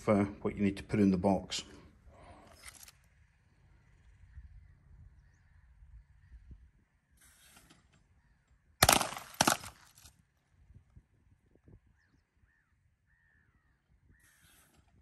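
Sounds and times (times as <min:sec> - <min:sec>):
wind rumbling on microphone: 0:03.2 - 0:07.1, 0:10.5 - 0:15.0
rifle shots: 0:08.8 - 0:09.8.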